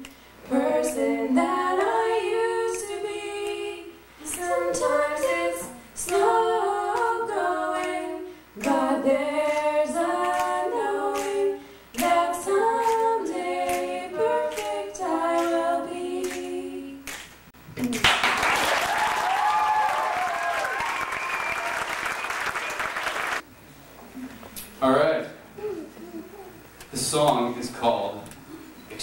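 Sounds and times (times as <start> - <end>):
women singing in harmony: 0.0 - 17.1.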